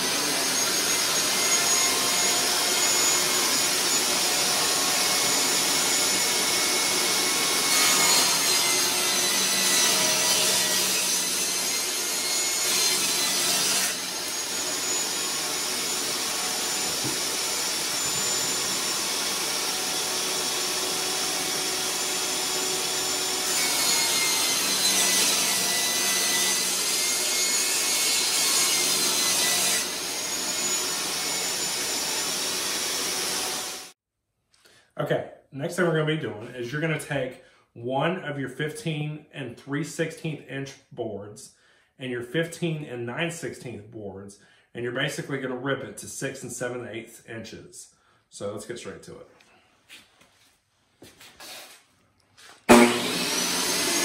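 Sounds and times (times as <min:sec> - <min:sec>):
table saw motor whining: 0:00.0 - 0:34.0, 0:52.7 - 0:54.0
saw blade ripping wood: 0:51.4 - 0:54.0.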